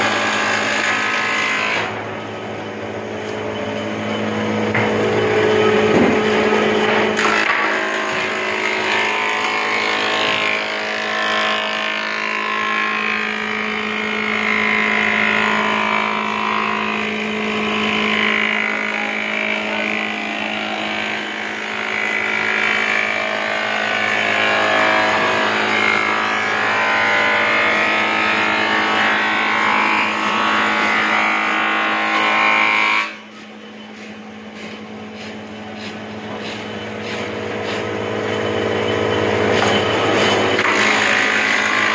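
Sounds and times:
planer cutting wood: 0.0 - 2.1, 4.7 - 38.3, 39.4 - 41.9.

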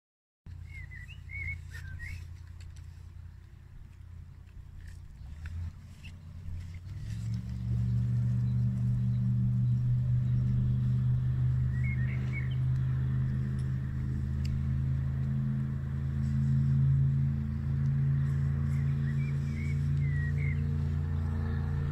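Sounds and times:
bird chirping: 0.5 - 3.5, 7.3 - 13.7, 17.4 - 21.9
engine running: 0.5 - 21.9.

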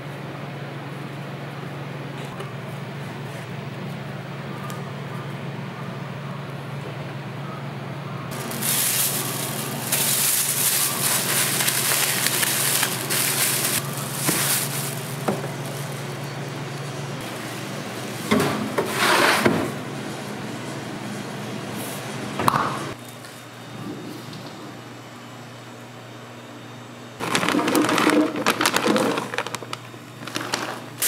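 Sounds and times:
plastic bag crinkling: 8.3 - 16.4, 27.2 - 31.0.

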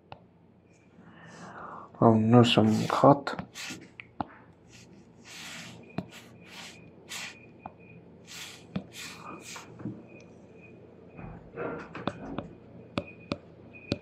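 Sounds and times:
man breathing: 1.0 - 2.0.

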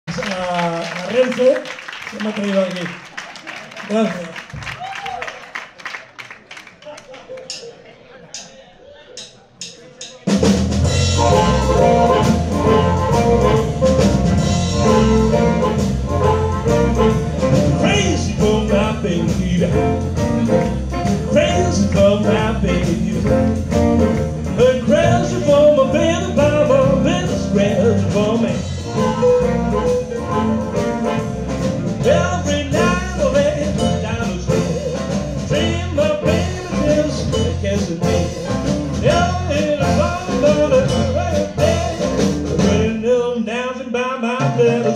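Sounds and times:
live blues band playing: 10.2 - 43.3, 44.2 - 44.9
amplified harmonica lead: 11.0 - 17.9.

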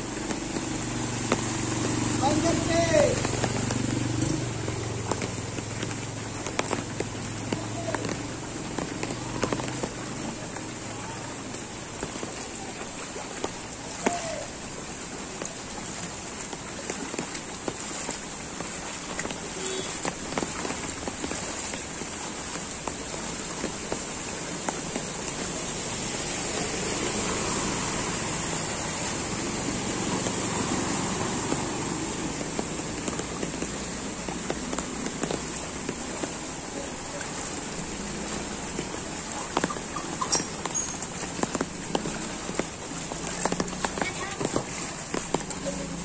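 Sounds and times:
footsteps sloshing through water: 0.0 - 46.0
heavy rain hissing: 0.0 - 46.0
scooter splashing through water: 0.0 - 46.0.

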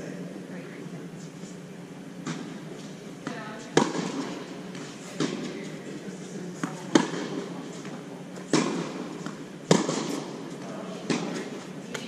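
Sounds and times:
tennis ball bouncing: 2.2 - 12.0
tennis ball hits: 3.2 - 5.8, 6.6 - 12.0.

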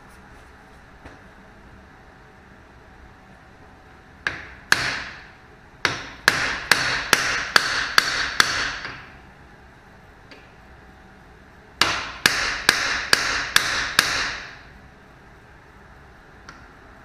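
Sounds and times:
hammer striking metal: 5.8 - 9.0, 11.8 - 14.6.

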